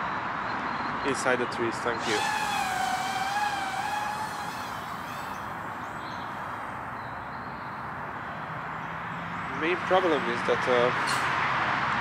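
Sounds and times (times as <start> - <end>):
drone buzzing whine: 2.0 - 7.3.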